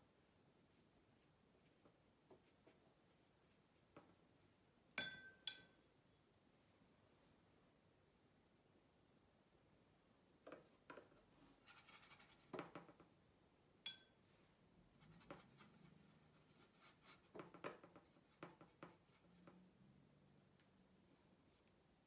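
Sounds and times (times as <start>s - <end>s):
sharp ringing clink: 5.0s - 5.8s
brush scratching on paper: 11.4s - 12.6s, 14.9s - 19.6s.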